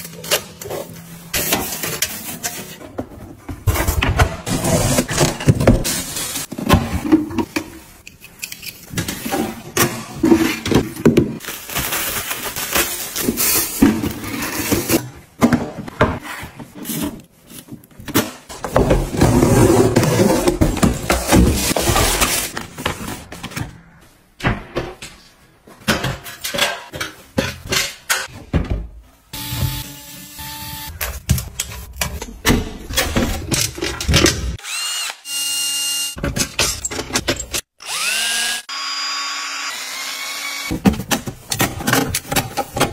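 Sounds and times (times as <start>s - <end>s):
cordless drill whining: 34.6s - 36.1s, 37.8s - 40.7s.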